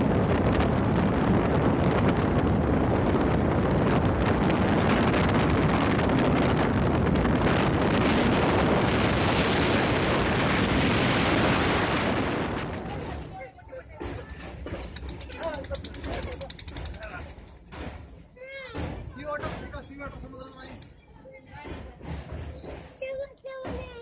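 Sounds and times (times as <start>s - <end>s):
strong wind buffeting microphone: 0.0s - 17.4s.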